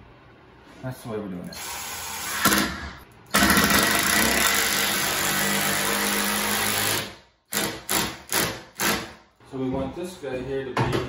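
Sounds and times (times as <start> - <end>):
cordless drill driving screw: 1.6 - 9.1.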